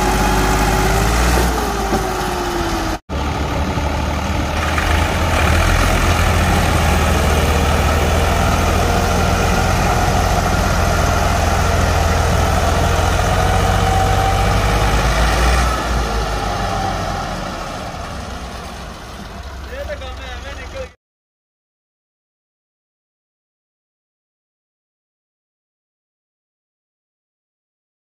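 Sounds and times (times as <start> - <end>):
tractor diesel engines under load: 0.0 - 21.0.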